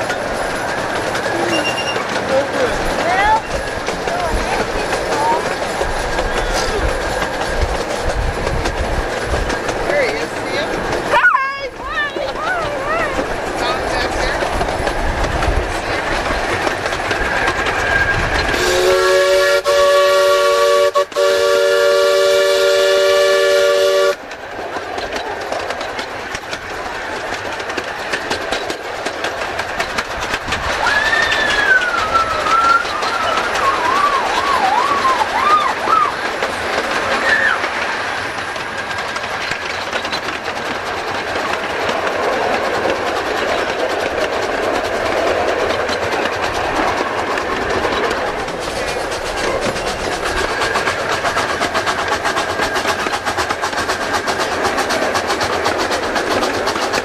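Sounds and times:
train clickety-clack on track: 0.0s - 57.0s
wavering high squeal: 1.4s - 2.1s
steam locomotive chime whistle: 1.5s - 2.0s, 18.6s - 24.2s.

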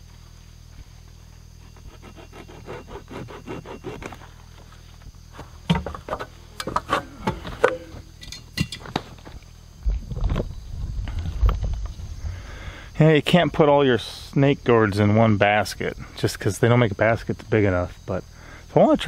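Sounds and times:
hacksaw cutting: 1.7s - 4.2s
knocks and rustling: 5.3s - 11.9s.

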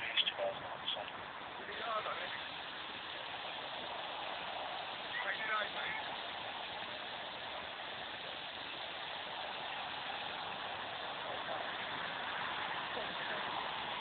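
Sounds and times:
distant jet engine rushing: 0.0s - 14.0s.

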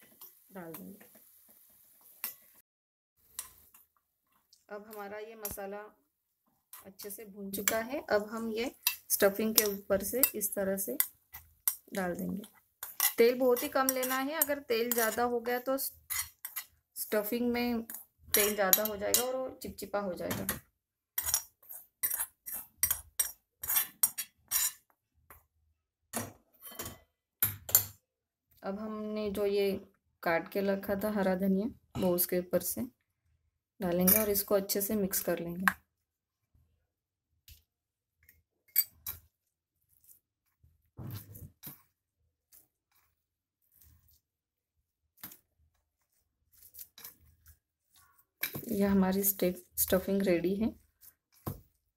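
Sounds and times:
metal spoon scraping metal pan: 6.7s - 24.9s, 33.9s - 34.5s, 46.5s - 50.8s
hand mashing food in steel bowl: 6.8s - 25.4s, 37.4s - 51.9s.

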